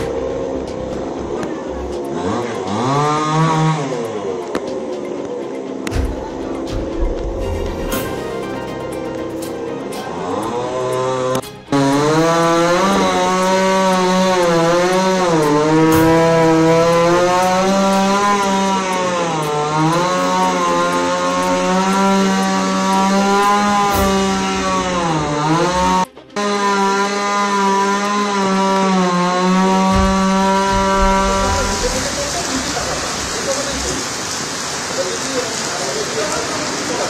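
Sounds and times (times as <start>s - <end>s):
chainsaw cutting wood: 1.4s - 5.1s, 10.1s - 33.4s.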